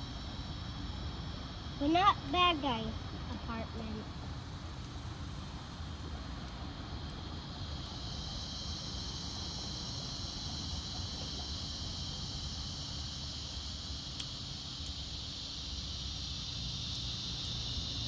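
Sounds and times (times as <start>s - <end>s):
cicadas buzzing: 0.0s - 18.0s.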